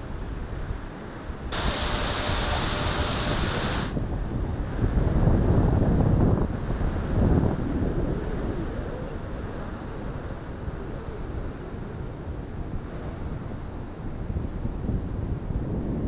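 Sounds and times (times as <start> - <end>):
model jet fans whining: 0.0 - 14.4
wind noise: 0.0 - 16.0.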